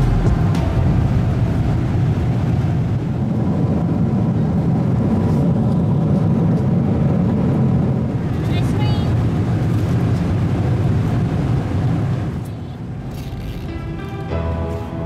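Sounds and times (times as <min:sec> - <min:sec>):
airliner cabin engine rumble: 0:00.0 - 0:15.0.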